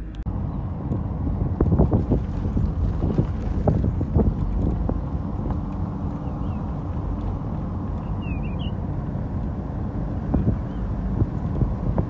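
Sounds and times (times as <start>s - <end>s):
car driving on road: 0.0s - 12.0s
wind on microphone: 0.0s - 12.0s.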